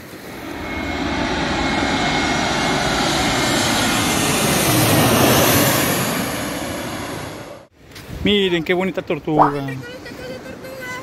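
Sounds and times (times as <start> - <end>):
jet airliner passing low overhead: 0.0 - 7.7.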